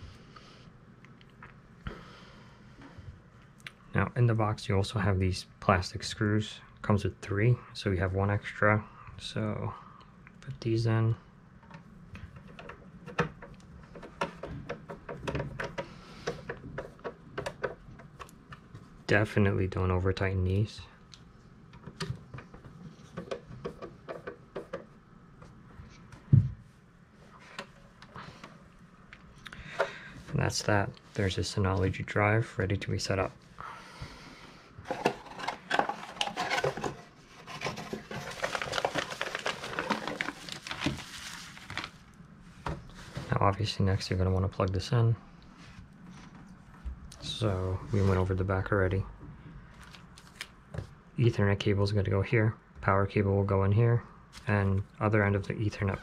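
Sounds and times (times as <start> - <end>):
plastic bags crinkling: 34.9 - 42.2.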